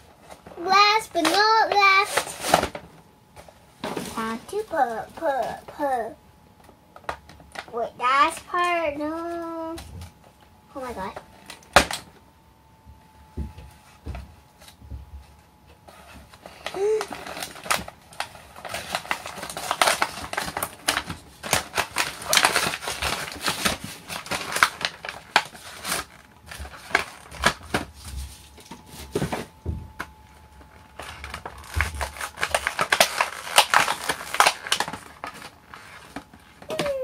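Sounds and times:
plastic packaging crinkling: 0.0s - 2.9s, 15.9s - 37.0s.

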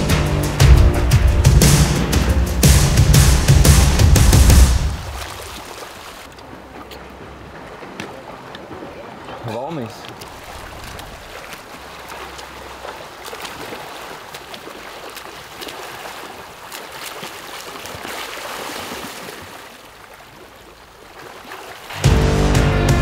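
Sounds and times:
swimmers splashing in pool: 4.8s - 22.2s.

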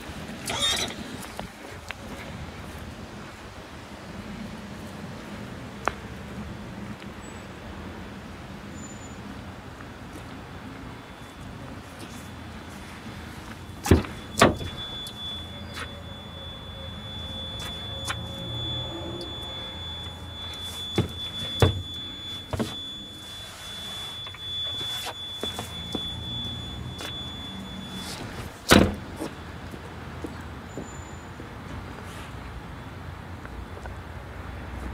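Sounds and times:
thin high tone: 11.1s - 28.5s
van door clunks: 13.8s - 15.0s, 21.0s - 22.8s, 28.3s - 29.1s.

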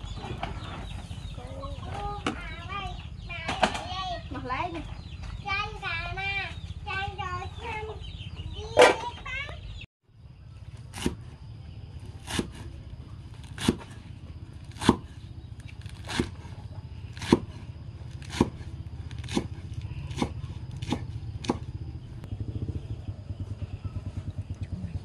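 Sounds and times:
steady low hum: 0.0s - 25.0s
cleaver chopping on wooden block: 13.6s - 13.9s, 14.7s - 15.1s, 17.2s - 17.5s, 18.2s - 18.6s, 19.2s - 21.7s.

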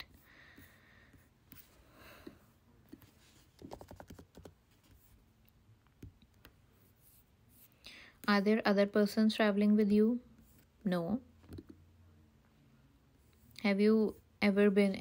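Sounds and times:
computer keyboard typing: 3.6s - 5.0s.

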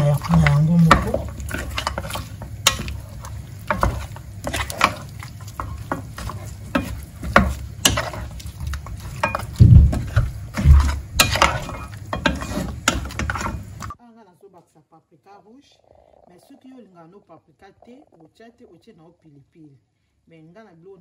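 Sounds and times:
meat frying: 0.0s - 14.0s
wooden spatula scraping a pan: 0.0s - 14.0s
dull thumps: 9.4s - 11.4s.

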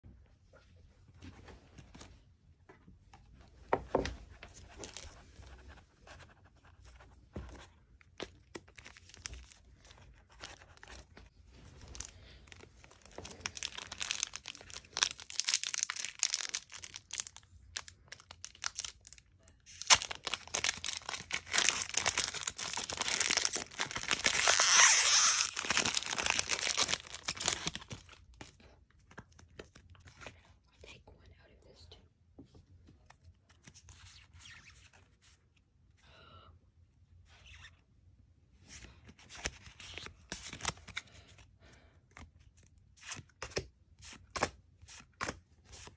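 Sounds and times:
foil wrapper crinkling and tearing: 11.8s - 28.3s.

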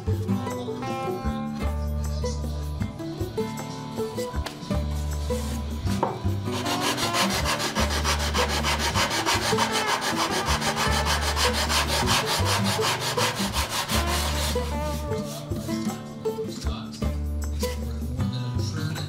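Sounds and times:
sanding block scraping: 5.0s - 15.9s.

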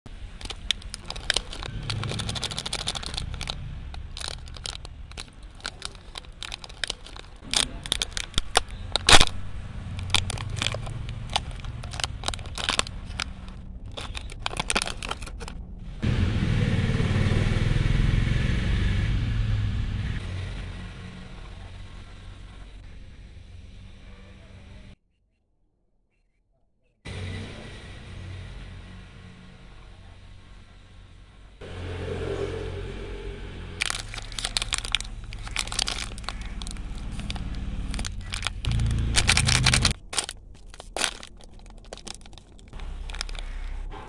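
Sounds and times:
steady low rumble: 0.1s - 17.8s, 32.8s - 44.0s
plastic wrapper crinkling and tearing: 0.2s - 15.6s, 33.8s - 43.9s.

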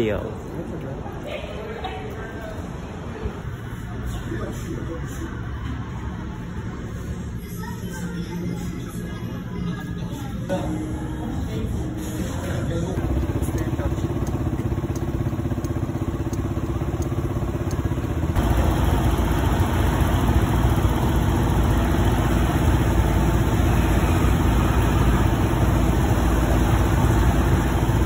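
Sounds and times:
passing city traffic: 0.0s - 28.0s
motor scooter engine: 12.2s - 28.0s.

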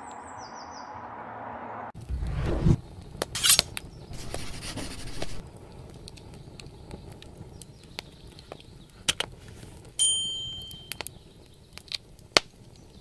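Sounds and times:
short rush of noise: 1.9s - 2.8s, 4.2s - 5.4s
quick whoosh: 2.0s - 2.8s
faint crackles and ticks: 5.0s - 13.0s.

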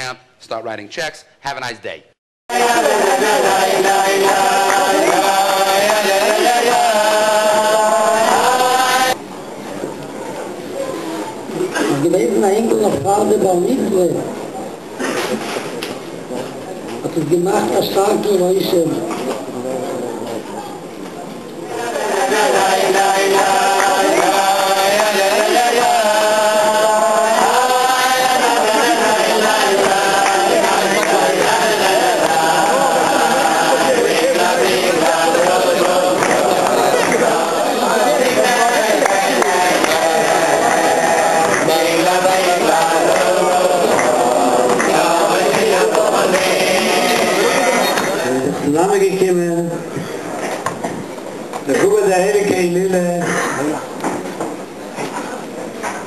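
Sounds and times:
voices singing a slow chant: 2.5s - 9.3s, 21.6s - 48.7s.

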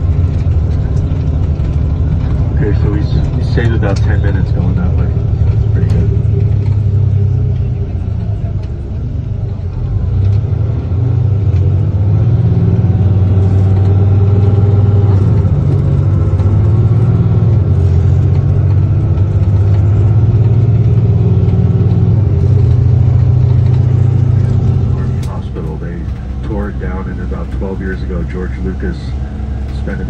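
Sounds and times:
vehicle engine and road drone: 0.0s - 30.0s.

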